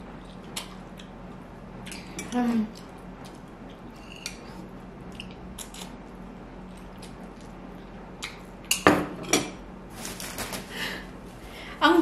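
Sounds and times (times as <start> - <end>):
person chewing noodles: 0.2 - 8.6.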